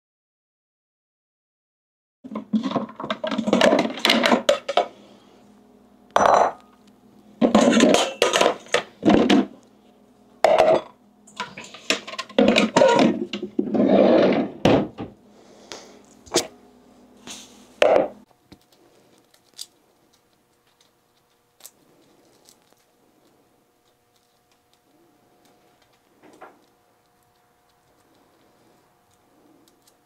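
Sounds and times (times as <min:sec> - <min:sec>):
pots and pans clattering: 0:02.3 - 0:04.9, 0:07.4 - 0:09.6, 0:10.4 - 0:15.1.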